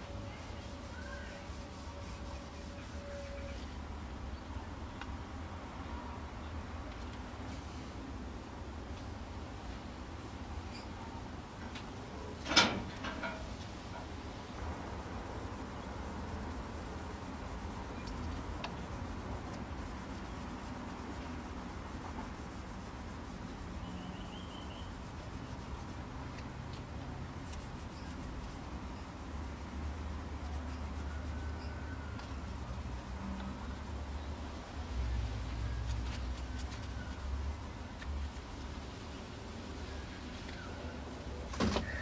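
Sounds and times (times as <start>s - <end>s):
cloth wiping wood: 0.1s - 3.6s, 14.2s - 37.3s.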